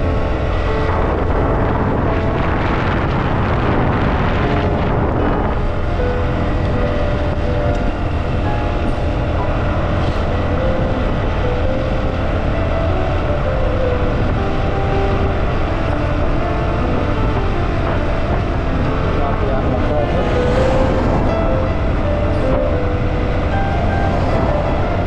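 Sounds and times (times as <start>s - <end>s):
road noise: 0.0s - 25.0s
wind noise: 0.0s - 25.0s.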